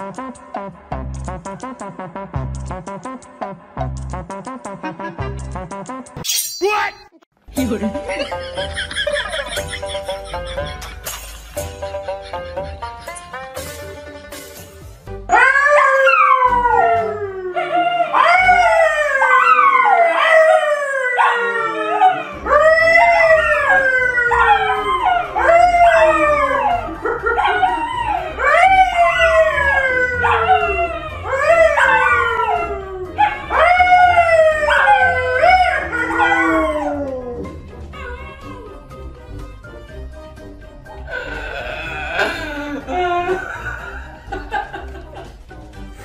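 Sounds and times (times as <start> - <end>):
man howling: 15.3 - 38.8, 41.1 - 43.9
dogs howling: 15.3 - 39.0.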